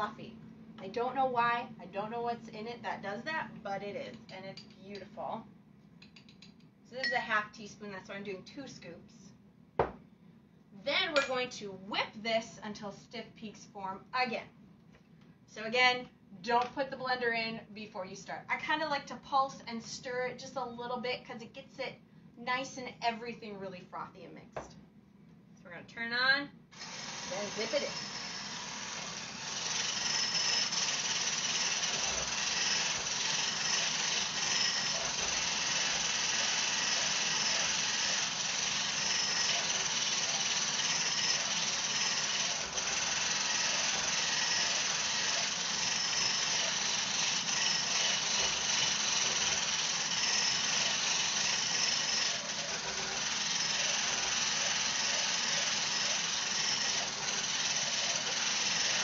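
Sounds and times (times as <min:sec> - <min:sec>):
immersion blender whirring: 0:26.8 - 0:59.0.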